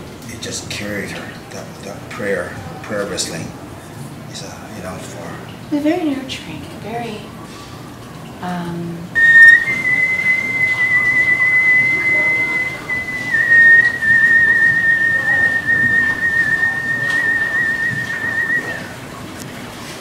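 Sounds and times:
man whistling high note: 9.2s - 19.0s.

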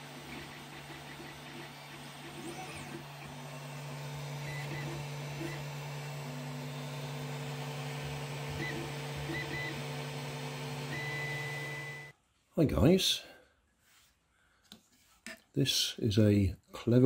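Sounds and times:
stepper motors whining: 0.0s - 12.1s.

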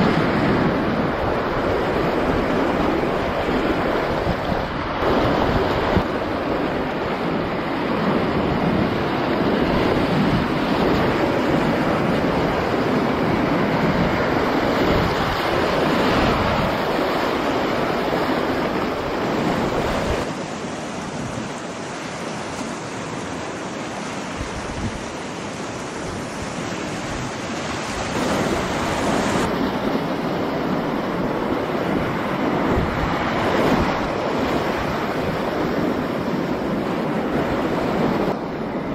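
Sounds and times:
whitewater rushing: 0.0s - 38.9s.

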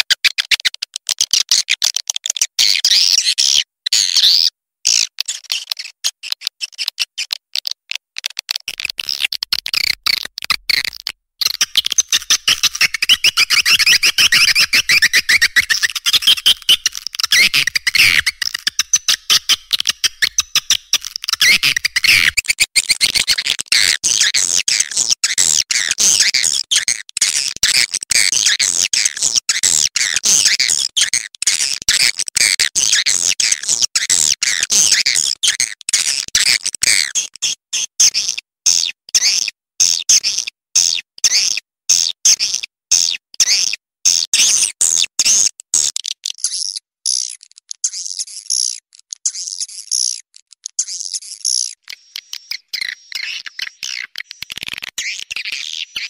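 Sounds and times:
swiftlets chirping and twittering: 11.4s - 22.4s, 50.8s - 56.0s.

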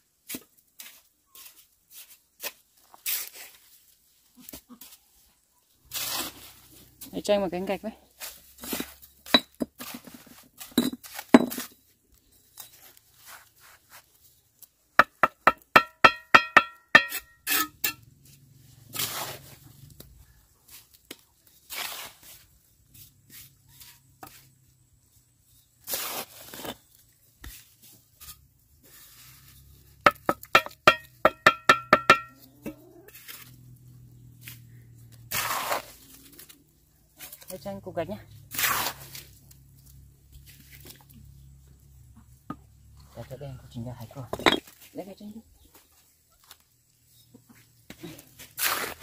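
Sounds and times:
trowel scraping: 0.3s - 3.7s, 5.9s - 6.6s, 15.0s - 19.7s, 20.7s - 24.6s, 25.5s - 33.6s, 35.2s - 36.6s, 38.5s - 39.5s, 48.1s - 49.0s
trowel tapping bricks: 15.0s - 18.0s, 30.0s - 32.4s.

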